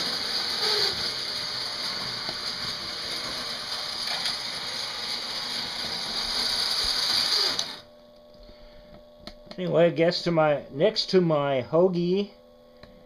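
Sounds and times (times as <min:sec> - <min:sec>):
toy train motor whirring and grinding: 0:00.0 - 0:07.9
faint hum: 0:07.6 - 0:13.0.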